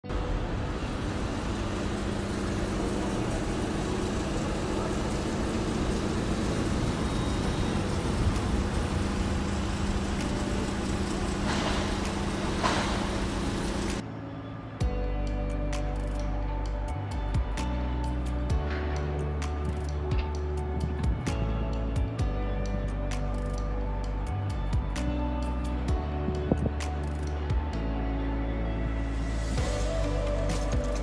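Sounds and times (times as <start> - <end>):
mechanical hum and rushing: 0.0 - 14.0.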